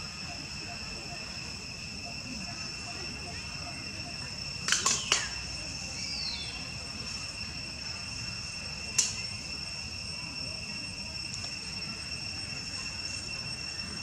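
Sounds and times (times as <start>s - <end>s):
high-pitched insect drone: 0.0s - 14.0s
sharp click: 4.6s - 5.3s, 9.0s - 9.2s.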